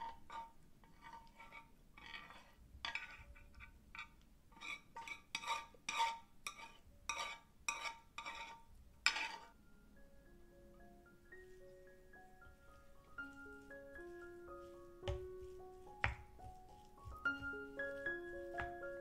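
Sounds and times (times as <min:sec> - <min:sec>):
chopsticks scraping a pan: 0:00.0 - 0:09.6.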